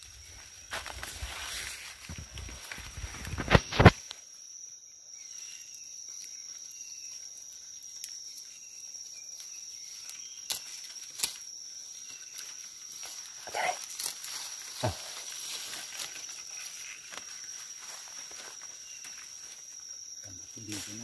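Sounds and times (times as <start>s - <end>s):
high-pitched insect call: 0.0s - 21.0s.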